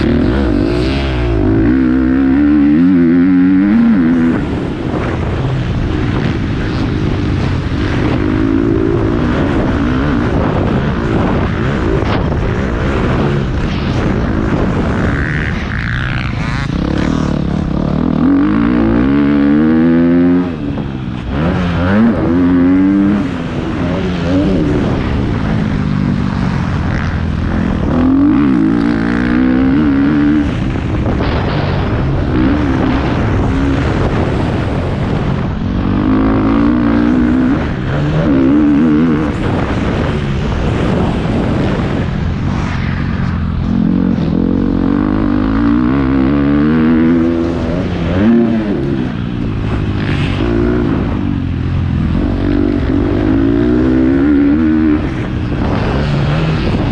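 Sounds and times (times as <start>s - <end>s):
motocross bike engine revving: 0.0s - 42.2s, 43.2s - 56.9s.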